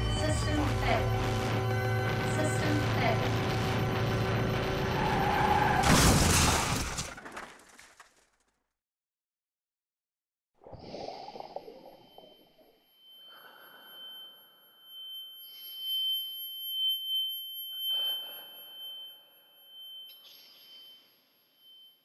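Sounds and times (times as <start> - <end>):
high-pitched ringing tone: 0.0 - 5.0, 11.3 - 22.0.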